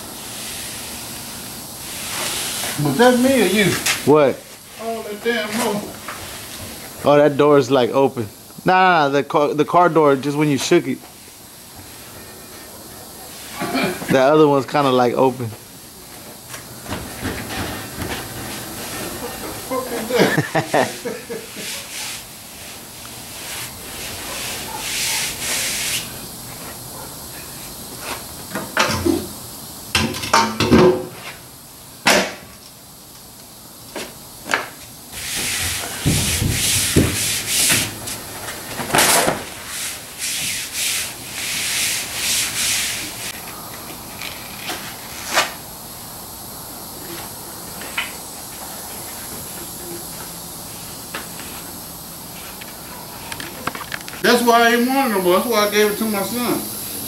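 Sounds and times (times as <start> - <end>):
hands rubbing canvas: 20.3 - 26.8, 35.2 - 38.6, 39.6 - 43.4.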